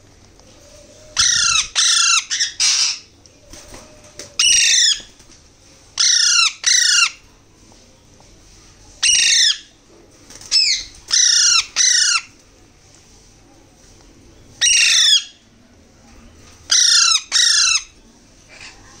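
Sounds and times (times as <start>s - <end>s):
parakeet chicks squawking: 1.2s - 3.1s, 4.4s - 5.1s, 6.0s - 7.2s, 9.0s - 9.6s, 10.5s - 12.3s, 14.6s - 15.3s, 16.7s - 17.9s.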